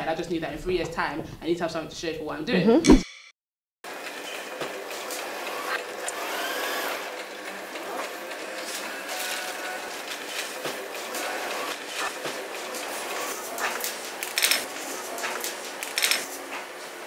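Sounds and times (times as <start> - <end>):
machine whirring: 10.2 - 17.0.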